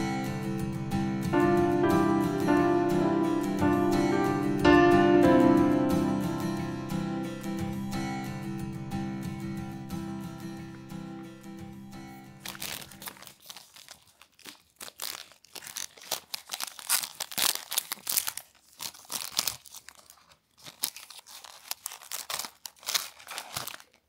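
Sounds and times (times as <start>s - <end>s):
acoustic guitar music: 0.0s - 12.8s
plastic wrapper crinkling and tearing: 12.1s - 24.0s.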